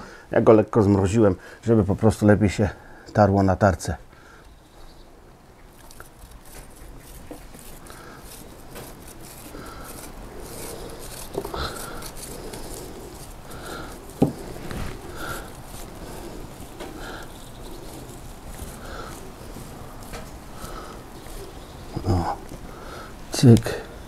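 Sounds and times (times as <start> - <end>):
cheese rasped on a grater: 5.7 - 23.6.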